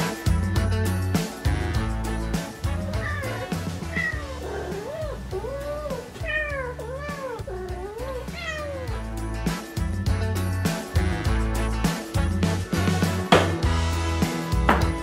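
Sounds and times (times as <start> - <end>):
background music: 0.0 - 15.0
cat meowing: 2.7 - 9.0.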